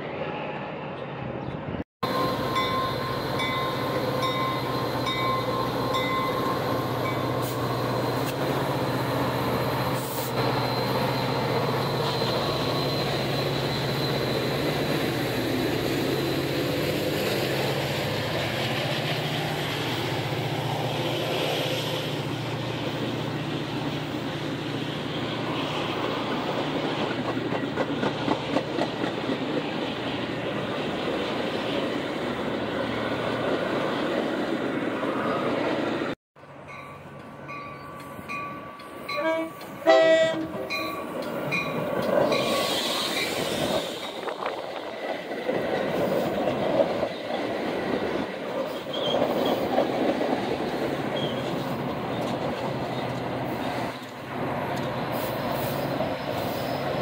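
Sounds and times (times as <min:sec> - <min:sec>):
diesel locomotive engine drone: 0:00.0 - 0:57.0
train wheels on rails: 0:02.0 - 0:57.0.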